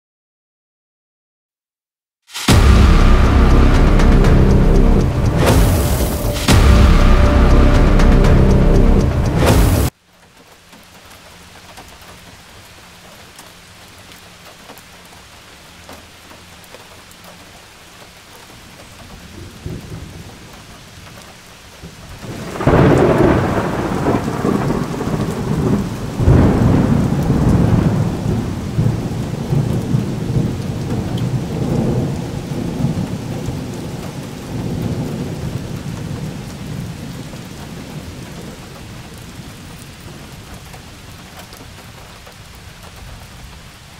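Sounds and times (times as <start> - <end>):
rain and hail falling: 2.3 - 43.9
rumbling thunder: 2.4 - 9.9, 22.2 - 38.5
thunderclap: 2.4 - 9.9, 22.2 - 33.9.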